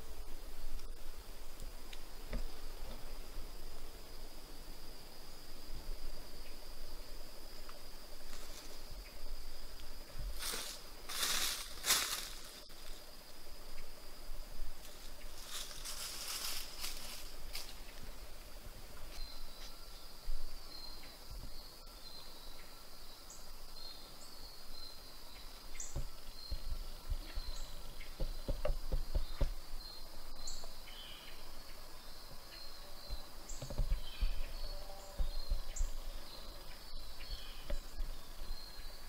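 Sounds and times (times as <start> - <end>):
high insect trill: 0.0 - 39.0
low rumbling thuds: 25.9 - 29.7.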